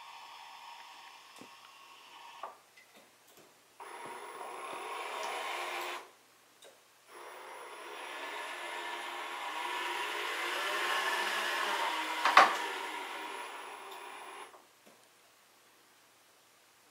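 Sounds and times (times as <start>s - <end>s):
electric motors whirring: 3.8s - 6.1s, 7.1s - 14.6s.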